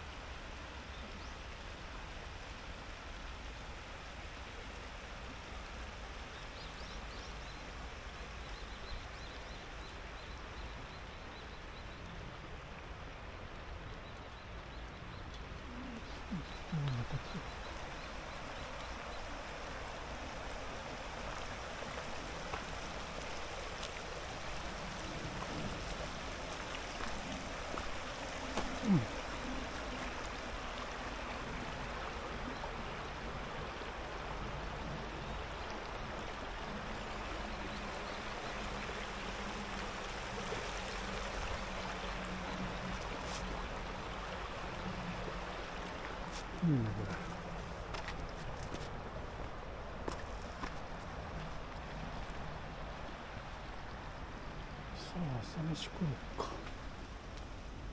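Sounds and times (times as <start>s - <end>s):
river rushing over rocks: 15.4s - 57.9s.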